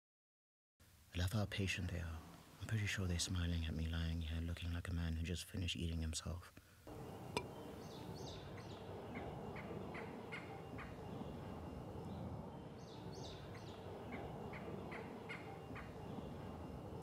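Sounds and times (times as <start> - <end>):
bird calling sharp notes: 6.9 - 17.0
low background rumble: 6.9 - 17.0.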